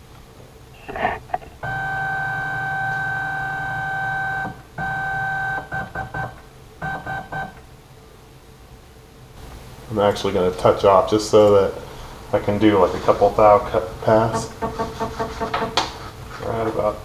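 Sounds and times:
stepper motor whining: 1.6 - 5.8.

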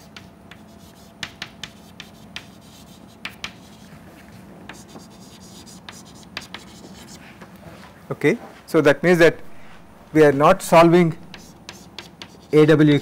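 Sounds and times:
chalk tapping and scratching: 0.0 - 7.4, 11.2 - 13.0.

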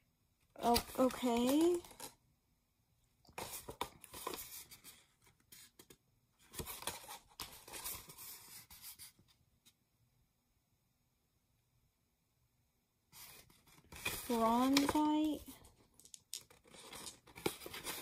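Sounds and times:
stiff paper rustling and crinkling: 13.2 - 15.8, 16.5 - 18.0.

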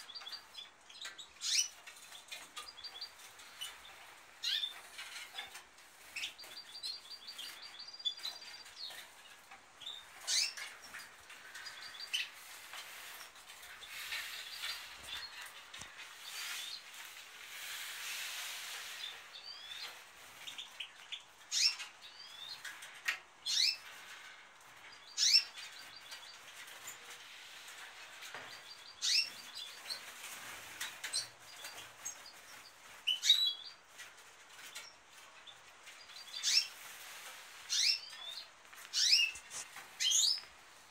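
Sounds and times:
finches chirping: 0.0 - 9.0, 9.8 - 18.0, 23.4 - 23.8, 24.9 - 27.0, 28.3 - 33.8, 34.7 - 36.9, 37.6 - 40.9.

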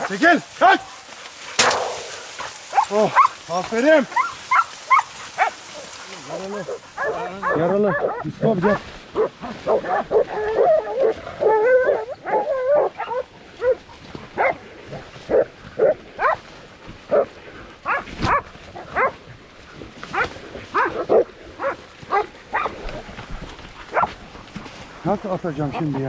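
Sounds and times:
dogs barking: 1.6 - 19.4, 20.0 - 23.1, 23.8 - 24.6
dogs whining cry: 9.2 - 14.6.

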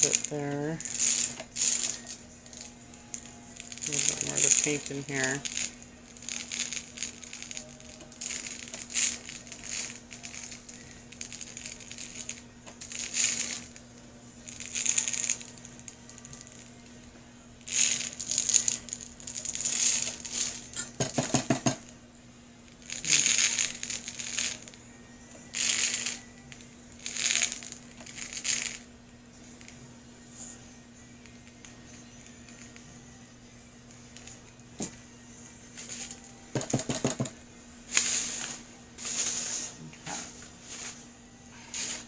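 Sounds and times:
glitter rattling in plastic jar: 0.0 - 13.8, 14.5 - 16.7, 17.6 - 21.9, 22.7 - 24.8, 25.5 - 28.9, 34.1 - 35.0, 35.8 - 37.3, 37.9 - 41.0, 41.6 - 42.0.

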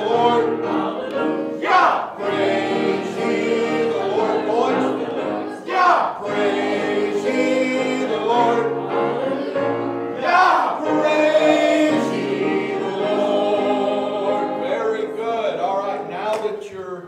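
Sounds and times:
choir singing: 0.0 - 16.2
musical accompaniment: 0.0 - 17.0.

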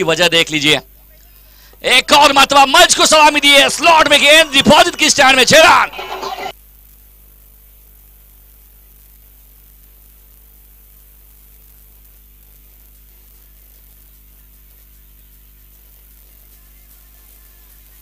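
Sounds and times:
electrical hum: 0.0 - 18.0
faint hiss: 6.0 - 18.0.

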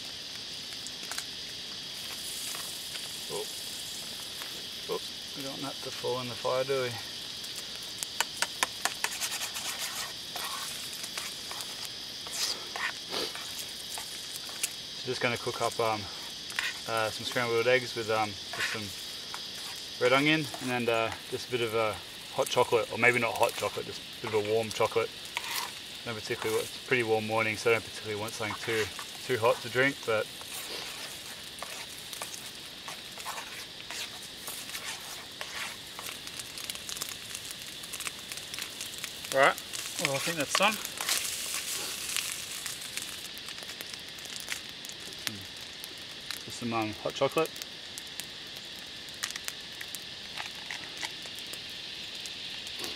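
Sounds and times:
eggs sizzling in frying pan: 0.0 - 52.9
insect chorus: 0.0 - 52.9
utensil scraping frying pan: 8.8 - 13.5, 16.5 - 16.9, 18.5 - 19.0, 25.3 - 26.7, 30.4 - 36.1.

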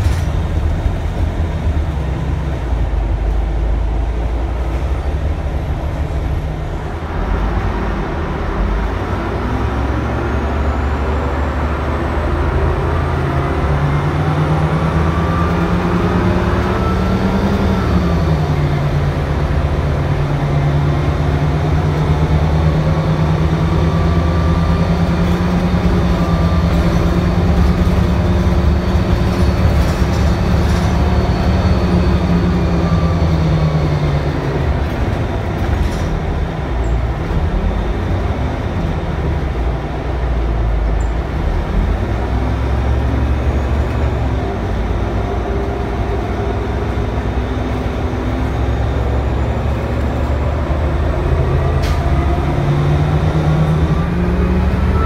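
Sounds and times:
bus engine drone from inside: 0.0 - 55.0.

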